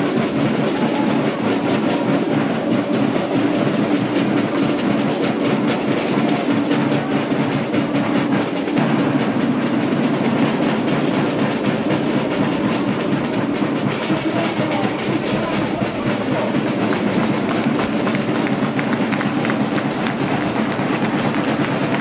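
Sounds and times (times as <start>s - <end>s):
crowd noise: 0.0s - 22.0s
snare drum roll: 0.0s - 22.0s.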